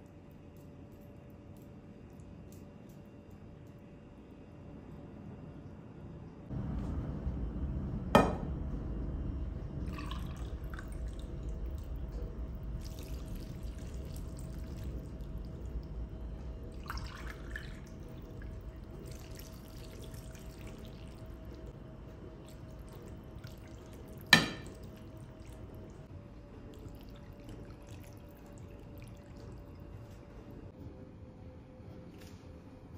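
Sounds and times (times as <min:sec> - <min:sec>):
broth pouring and trickling: 0:09.8 - 0:30.7.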